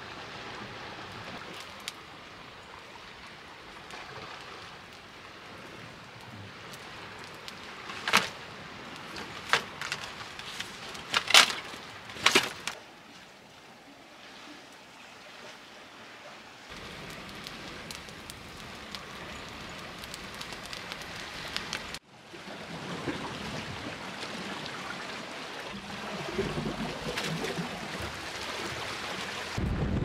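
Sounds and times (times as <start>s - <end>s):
wind: 0.0s - 30.0s
dry sticks cracking: 7.2s - 8.4s, 9.0s - 12.8s, 17.1s - 22.0s.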